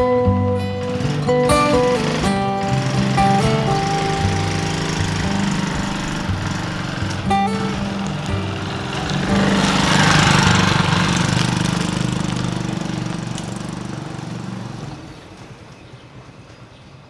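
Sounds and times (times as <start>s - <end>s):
moped engine running: 0.0s - 15.6s.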